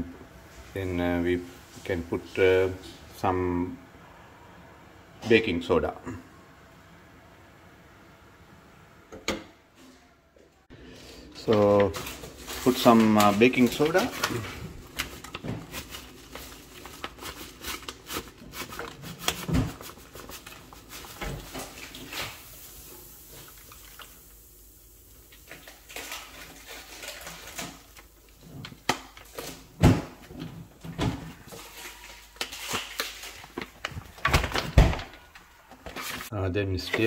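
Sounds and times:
plastic bag crinkling: 0:11.3 - 0:24.3, 0:25.2 - 0:29.7, 0:31.4 - 0:36.3.

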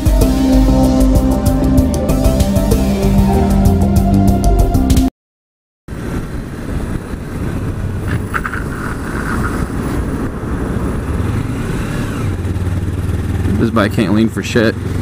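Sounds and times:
wind rushing over microphone: 0:05.9 - 0:14.2
motorcycle engine running: 0:07.3 - 0:15.0.

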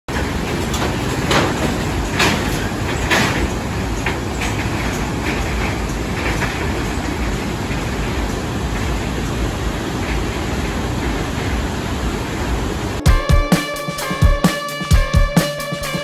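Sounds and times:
wheels clunking over deck joints: 0:00.1 - 0:09.4.

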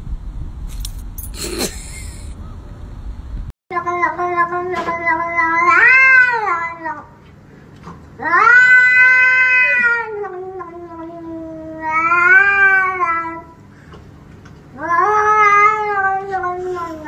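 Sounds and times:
cat meowing: 0:05.4 - 0:06.9, 0:08.2 - 0:13.5, 0:14.8 - 0:16.8.

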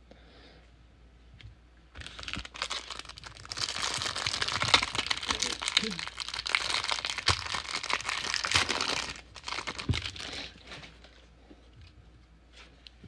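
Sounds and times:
plastic wrapper crinkling and tearing: 0:02.0 - 0:10.8.

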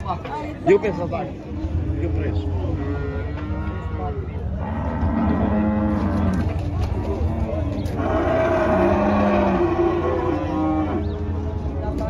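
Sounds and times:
cattle mooing: 0:02.7 - 0:06.5, 0:07.4 - 0:11.2.

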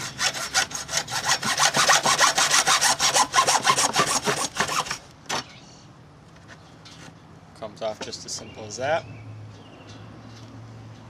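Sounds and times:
hacksaw cutting plastic pipe: 0:00.0 - 0:05.0.

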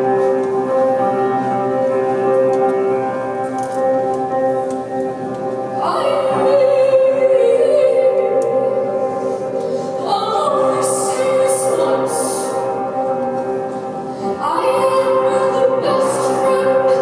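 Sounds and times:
held keyboard chords: 0:00.0 - 0:17.0
woman singing: 0:05.8 - 0:08.9, 0:10.0 - 0:12.8, 0:14.3 - 0:17.0.

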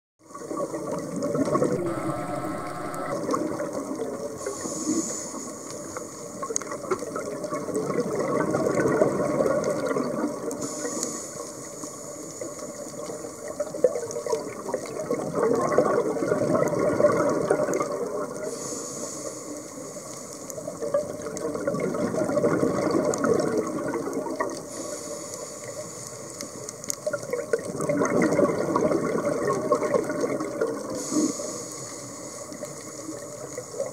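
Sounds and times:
exhaled bubbles gurgling: 0:00.2 - 0:18.7, 0:19.6 - 0:33.9
regulator inhale hiss: 0:01.8 - 0:03.2, 0:04.4 - 0:06.4, 0:10.6 - 0:12.7, 0:18.4 - 0:20.5, 0:24.7 - 0:26.7, 0:30.9 - 0:33.9.

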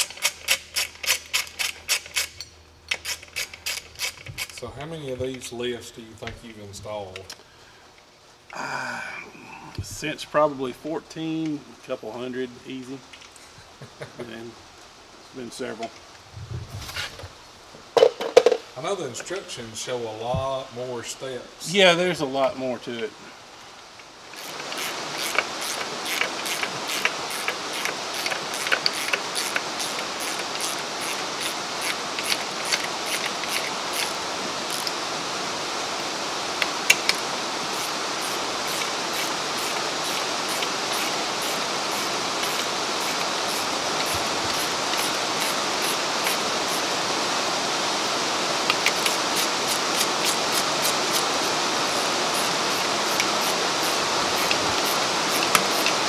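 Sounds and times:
hand ratchet clicking: 0:00.0 - 0:04.6, 0:24.4 - 0:35.0, 0:37.8 - 0:46.8, 0:48.7 - 0:51.2, 0:52.4 - 0:56.0
steady hiss: 0:00.0 - 0:56.0.

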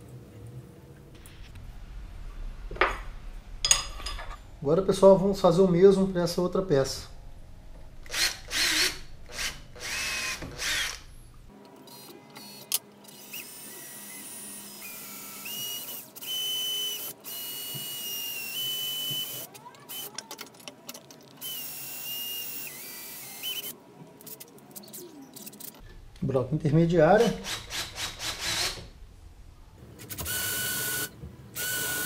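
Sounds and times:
cordless drill whining: 0:08.1 - 0:11.1, 0:30.2 - 0:32.0.

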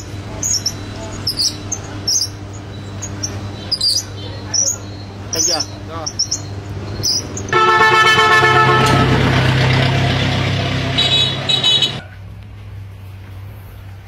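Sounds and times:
rushing street noise: 0:00.0 - 0:14.0
vehicle horn long blast: 0:07.5 - 0:09.6, 0:10.2 - 0:12.0
short higher horn honks: 0:07.5 - 0:12.0.

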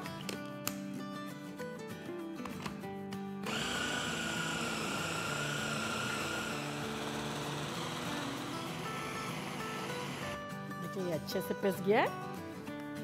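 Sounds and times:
food chopper motor whining: 0:03.4 - 0:10.4.

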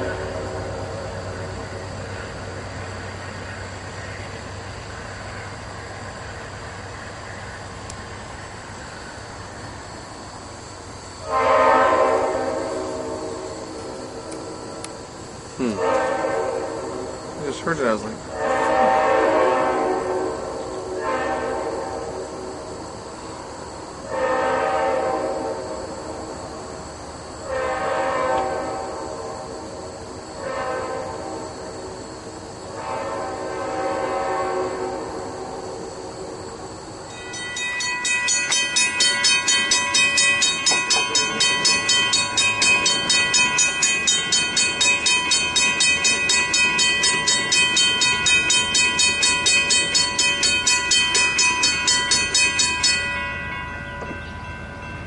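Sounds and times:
locomotive air horn blasts: 0:11.2 - 0:14.7, 0:15.6 - 0:17.2, 0:18.3 - 0:22.3, 0:24.1 - 0:25.8, 0:27.4 - 0:29.6, 0:30.4 - 0:31.7, 0:32.7 - 0:35.9
crossing warning bell ringing: 0:37.1 - 0:55.0.

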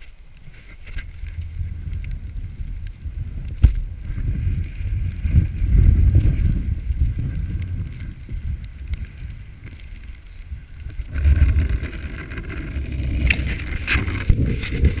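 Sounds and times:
wind rumble on microphone: 0:00.0 - 0:15.0
sled hissing and rattling over snow: 0:04.1 - 0:15.0.

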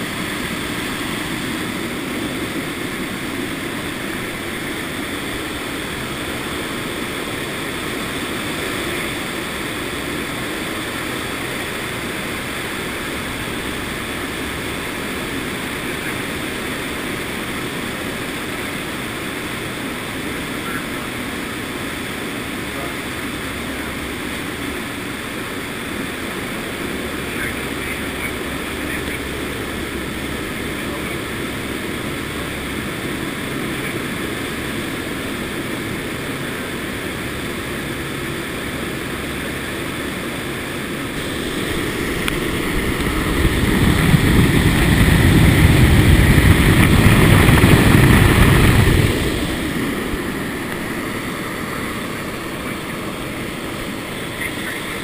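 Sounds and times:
turboprops droning: 0:00.0 - 0:55.0
wind rushing: 0:41.0 - 0:54.2.

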